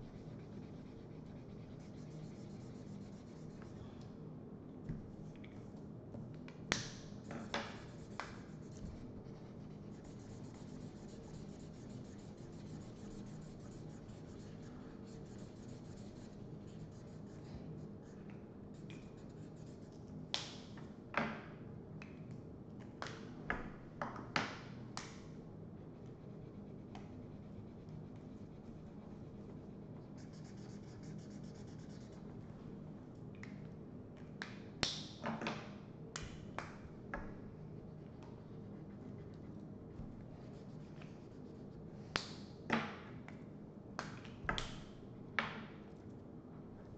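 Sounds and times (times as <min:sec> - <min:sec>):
markers scratching on paper: 0:00.0 - 0:03.7, 0:07.5 - 0:17.4, 0:30.2 - 0:32.2
steady low hum: 0:00.0 - 0:22.8, 0:24.7 - 0:34.8, 0:35.8 - 0:44.0.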